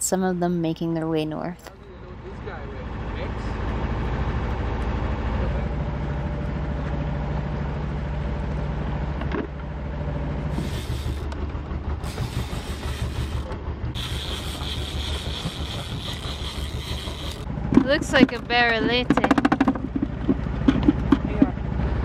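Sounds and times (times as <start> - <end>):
boat engine humming: 0.0 - 22.0
high steady whir: 10.5 - 20.4
water noise: 10.5 - 21.7.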